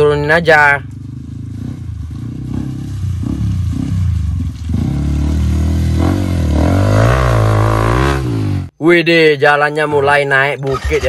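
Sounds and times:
motorcycle engine revving: 0:00.0 - 0:08.8.

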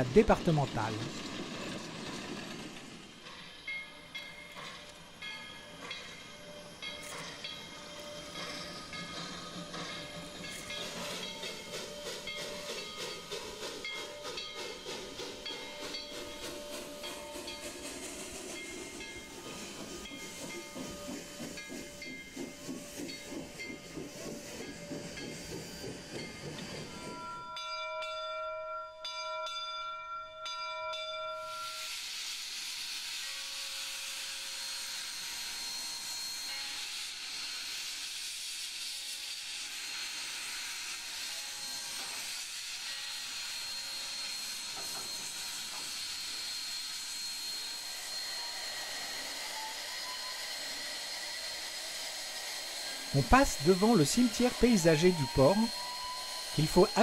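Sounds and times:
steam hissing: 0:00.0 - 0:27.4, 0:31.4 - 0:57.0
steam locomotive chuffing: 0:00.0 - 0:27.9, 0:31.4 - 0:57.0
steam whistle blasts: 0:39.3 - 0:57.0.

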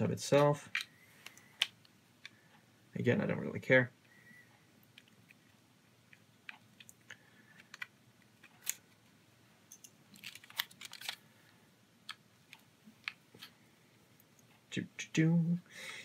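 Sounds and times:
metal drive being handled: 0:09.7 - 0:11.2.

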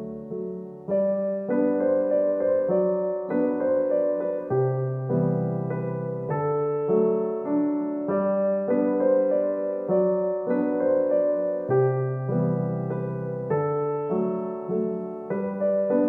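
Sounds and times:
gentle piano melody: 0:00.0 - 0:16.0.

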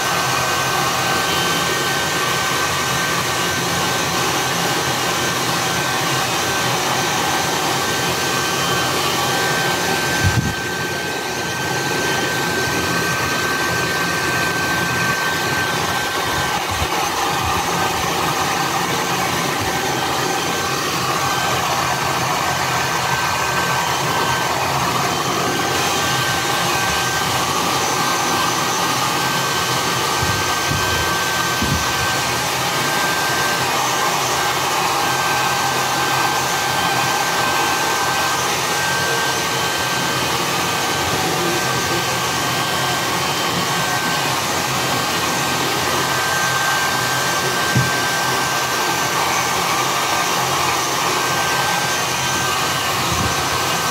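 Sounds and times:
hair dryer running: 0:00.0 - 0:53.9
knock: 0:47.7 - 0:47.9.

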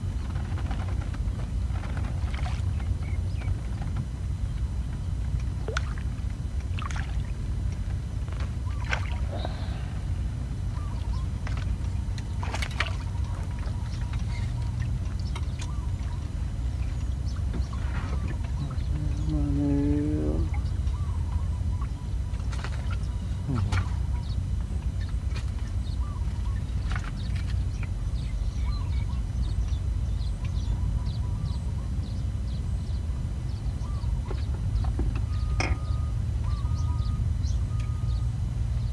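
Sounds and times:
low rumble: 0:00.0 - 0:38.9
small birds chirping: 0:08.5 - 0:38.9
fish splashing: 0:08.6 - 0:10.3, 0:11.4 - 0:16.8.

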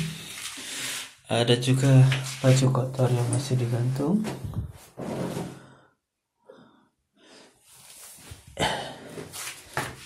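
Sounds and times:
rustling and handling noises: 0:07.7 - 0:10.0.

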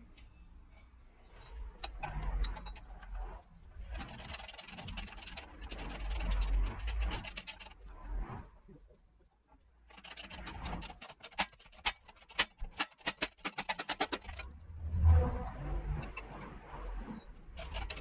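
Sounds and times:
hand tools scraping metal: 0:01.3 - 0:08.0, 0:09.8 - 0:14.5, 0:15.8 - 0:18.0
sharp metallic clicks: 0:01.6 - 0:14.8.

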